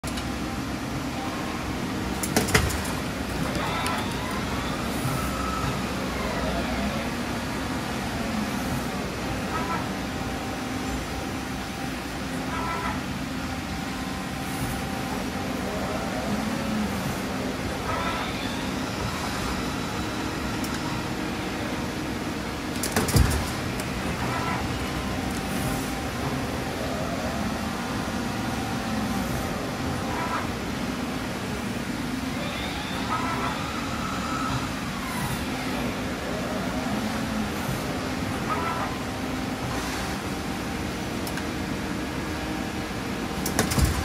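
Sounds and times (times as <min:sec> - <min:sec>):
faint machine whine: 0:00.0 - 0:44.0
machine hum: 0:00.0 - 0:44.0.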